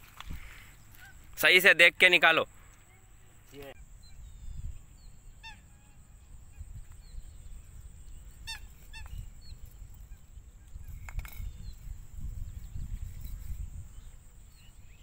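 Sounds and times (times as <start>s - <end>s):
wind rumbling on microphone: 0.0s - 1.4s, 3.1s - 15.0s
bird calling: 0.5s - 1.4s, 2.5s - 11.9s.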